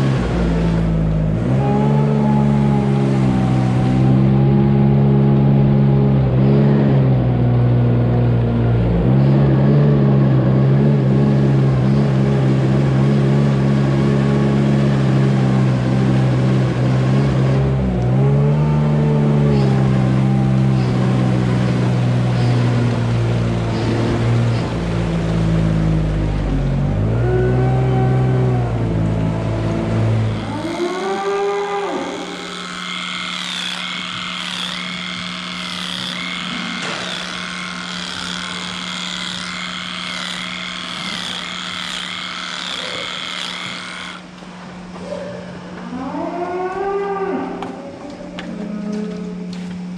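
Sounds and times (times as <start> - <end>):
small engine running: 0.0 - 44.4
steady hum: 0.0 - 45.9
cattle calling: 30.0 - 44.2.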